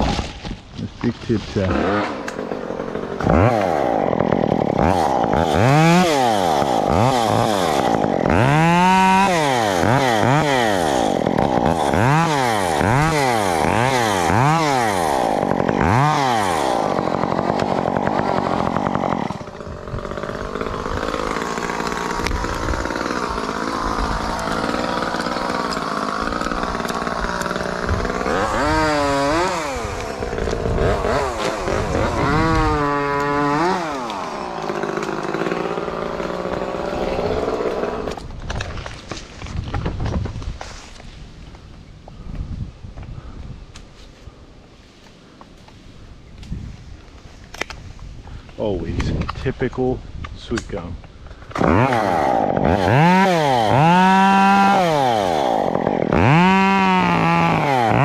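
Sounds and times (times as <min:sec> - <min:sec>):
chainsaw revving: 0:01.2 - 0:38.3, 0:51.5 - 0:58.0.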